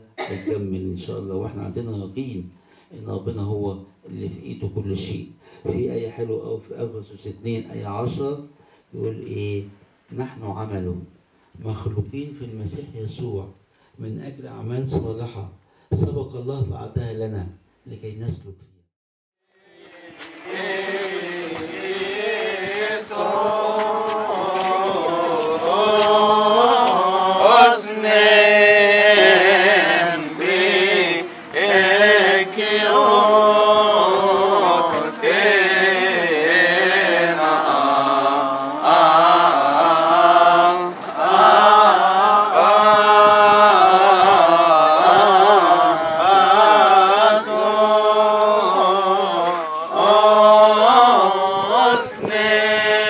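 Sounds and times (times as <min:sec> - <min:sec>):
church hymn chanting: 0:19.4 - 0:53.0.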